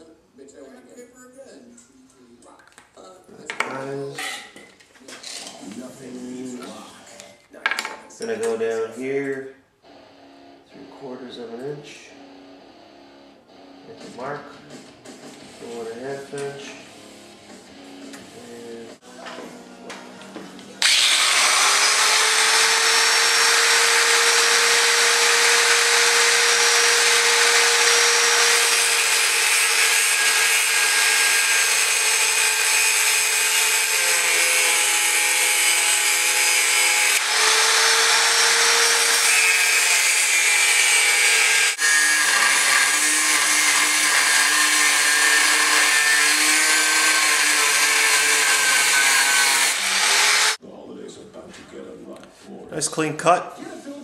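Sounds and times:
power tool cutting steel: 0:20.8 - 0:50.6.

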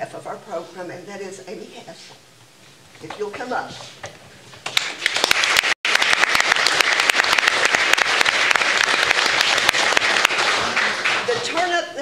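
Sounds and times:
audience applauding: 0:04.7 - 0:11.8.

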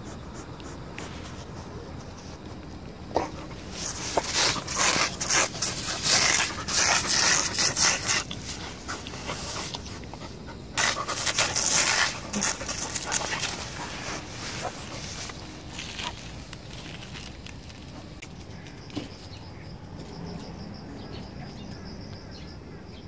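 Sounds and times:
dog panting and snuffling: 0:00.0 - 0:16.3.

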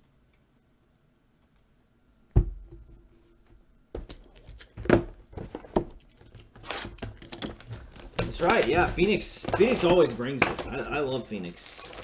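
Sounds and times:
knocks and rustles of box: 0:06.6 - 0:11.0.

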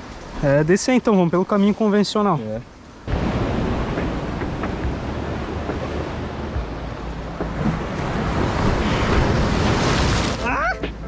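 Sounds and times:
sea surf rushing: 0:00.0 - 0:11.0
wind buffeting microphone: 0:03.0 - 0:11.0.

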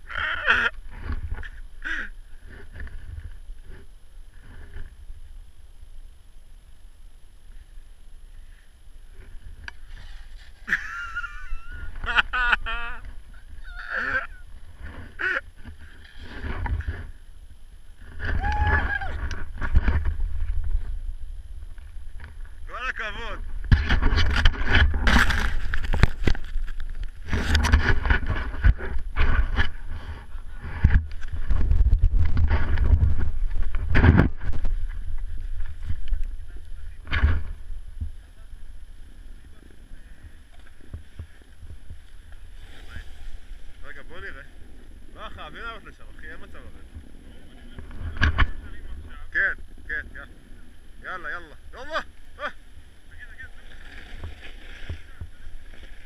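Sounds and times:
wind rumble: 0:08.9 - 0:56.0
snowboard scraping over snow: 0:09.1 - 0:17.2
person crying out: 0:13.6 - 0:14.5, 0:18.4 - 0:19.2.

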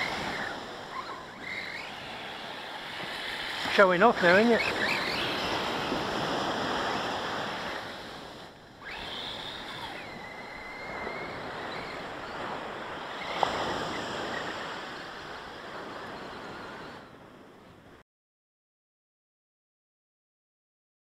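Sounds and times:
surf washing on beach: 0:00.0 - 0:18.0
faint high whine: 0:07.7 - 0:17.2.

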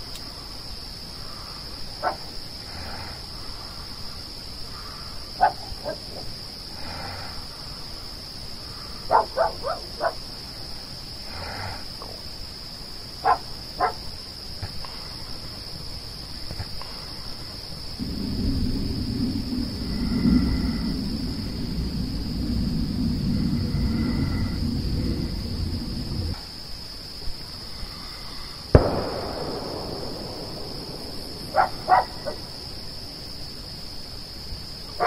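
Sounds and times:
night insects droning: 0:00.0 - 0:35.0
sharp animal calls: 0:09.0 - 0:10.2, 0:31.5 - 0:32.6
jet aircraft rumble: 0:16.2 - 0:34.4.

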